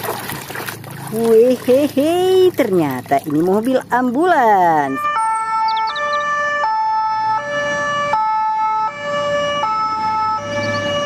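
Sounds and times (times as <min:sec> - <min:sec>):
road traffic rumbling: 0:00.0 - 0:11.0
ambulance two-tone siren: 0:04.6 - 0:11.0.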